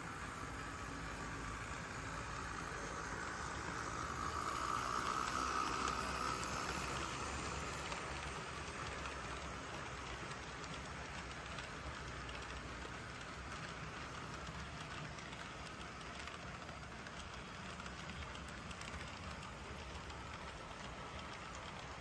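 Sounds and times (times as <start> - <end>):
model train motor whine: 0.0 - 22.0
model train wheels rumbling: 0.0 - 22.0.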